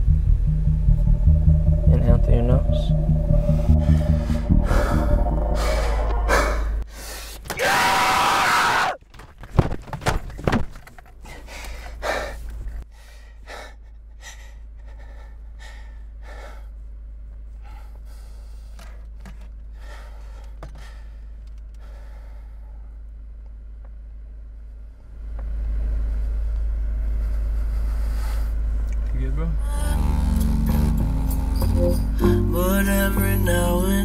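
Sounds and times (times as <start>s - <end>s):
man screaming: 7.5s - 9.0s
heavy gasping breaths: 11.2s - 16.8s, 17.6s - 23.0s.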